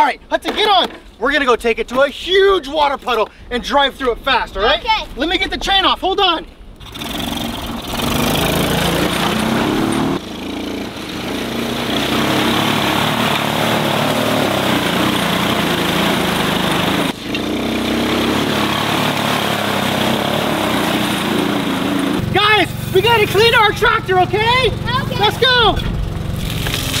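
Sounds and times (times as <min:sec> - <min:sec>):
small engine running: 0:06.8 - 0:27.0.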